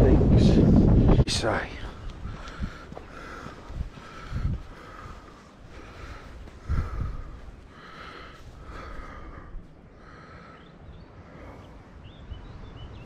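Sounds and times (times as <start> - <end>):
wind buffeting microphone: 0.0 - 13.0
person breathing noisily: 2.2 - 11.9.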